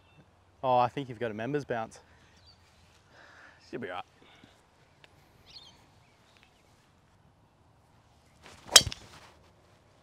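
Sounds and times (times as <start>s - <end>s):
bird chirp: 5.4s - 6.8s
golf club striking ball: 8.7s - 9.1s.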